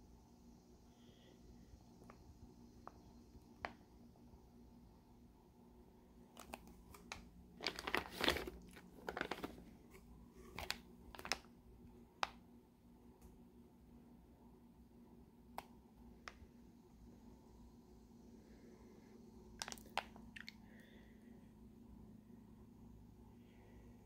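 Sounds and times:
plastic bags crinkling: 6.3s - 11.5s.

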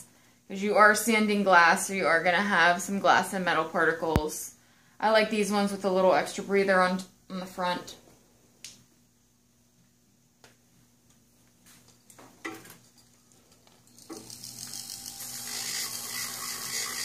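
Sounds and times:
rotary tool grinding enamel: 13.0s - 17.0s.

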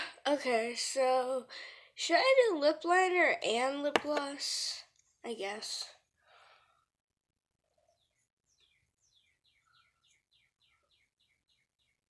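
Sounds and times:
faint bird chirping: 7.5s - 12.0s.

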